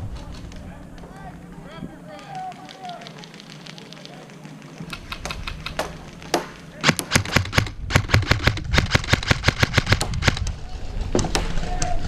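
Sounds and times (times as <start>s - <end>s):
airsoft guns firing: 4.8s - 10.4s.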